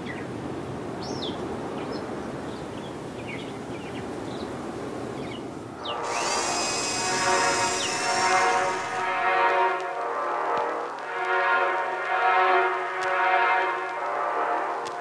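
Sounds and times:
small motor whirring: 0:05.8 - 0:09.4.

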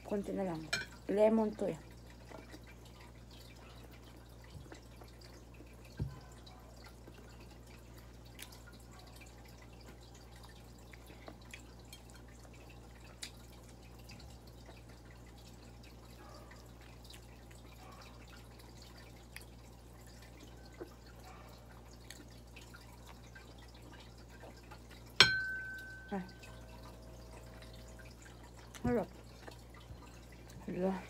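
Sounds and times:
low steady hum: 0:00.0 - 0:31.0
chewing clicks and smacks: 0:10.4 - 0:13.9, 0:18.9 - 0:25.0.

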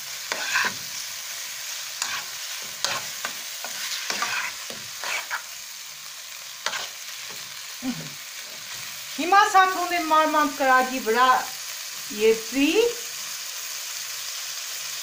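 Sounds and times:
scraping strokes against a pan: 0:00.0 - 0:05.8, 0:06.4 - 0:09.0
minced meat sizzling in a pan: 0:00.0 - 0:15.0.

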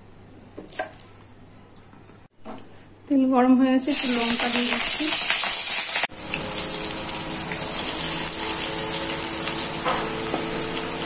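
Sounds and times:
chillies sizzling in hot oil: 0:03.8 - 0:11.0.

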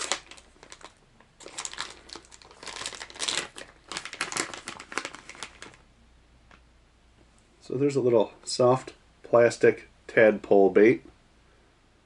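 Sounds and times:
plastic package crinkling: 0:00.0 - 0:05.8.

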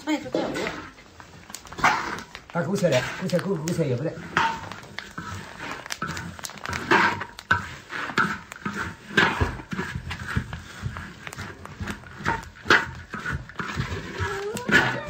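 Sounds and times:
metal spatulas scraping a wok: 0:06.8 - 0:15.0.

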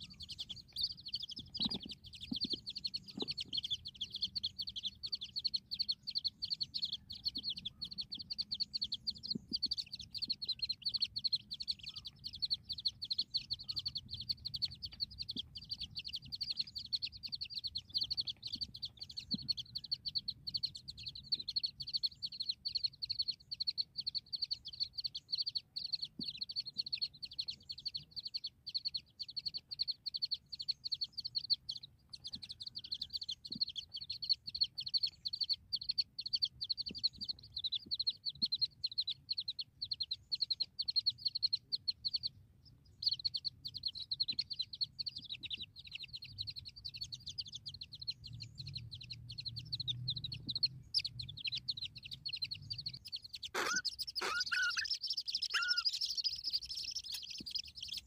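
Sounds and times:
nestling birds cheeping: 0:00.0 - 0:58.0.

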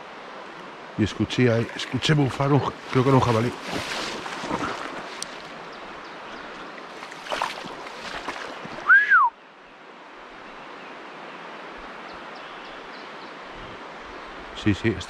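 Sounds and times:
river water rushing: 0:00.0 - 0:15.0
whistled note: 0:08.8 - 0:09.4.

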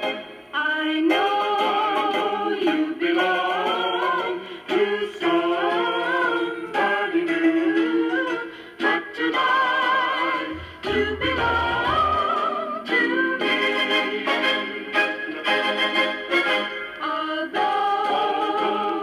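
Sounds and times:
singer with wavering vibrato: 0:04.2 - 0:14.0.

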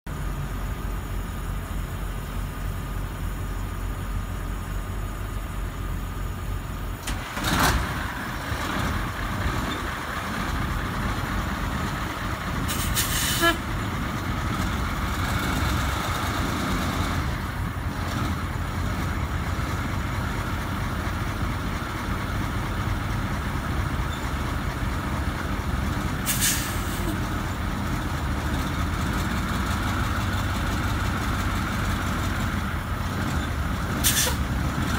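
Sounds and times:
diesel engine idling: 0:00.1 - 0:34.9
air brake hisses: 0:12.7 - 0:13.6, 0:26.2 - 0:27.2, 0:34.0 - 0:34.5.

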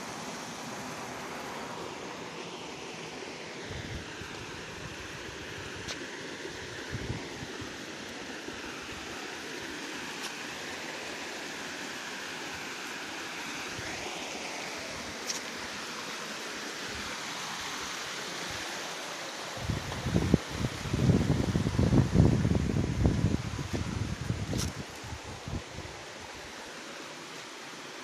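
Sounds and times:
stream rushing over rocks: 0:00.0 - 0:28.0
wind gusts hitting microphone: 0:19.6 - 0:25.9.

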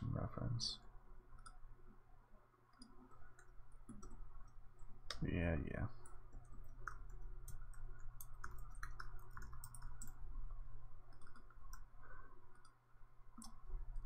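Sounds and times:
low steady hum: 0:00.0 - 0:14.0
keyboard typing: 0:02.7 - 0:05.2, 0:06.0 - 0:10.3, 0:11.0 - 0:12.8.

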